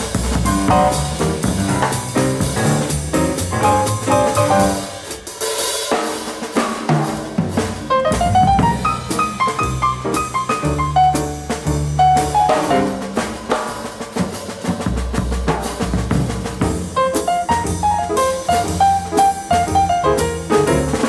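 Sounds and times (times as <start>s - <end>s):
upright bass: 0.0s - 5.0s, 7.9s - 13.3s, 14.8s - 21.0s
drum kit: 0.0s - 21.0s
piano: 0.0s - 21.0s.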